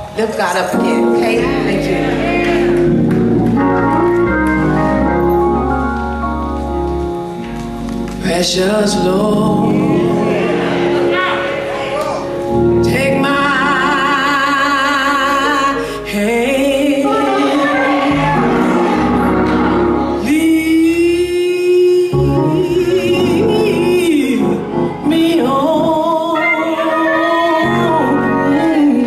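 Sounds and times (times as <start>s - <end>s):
instrumental accompaniment: 0.0s - 29.0s
woman singing gospel song: 8.2s - 10.6s, 12.8s - 19.0s, 20.2s - 29.0s.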